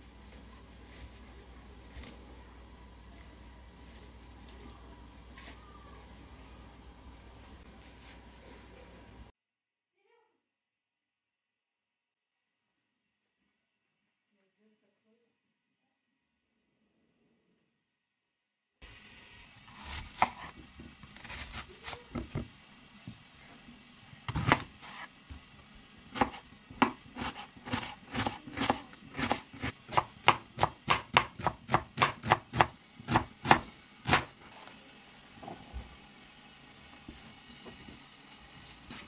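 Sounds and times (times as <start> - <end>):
knife slicing onion on cutting board: 19.7 - 23.2, 24.3 - 34.4.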